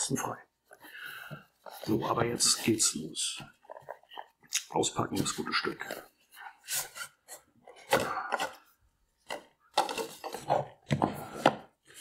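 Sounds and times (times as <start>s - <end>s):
cardboard scraping: 9.2s - 12.0s.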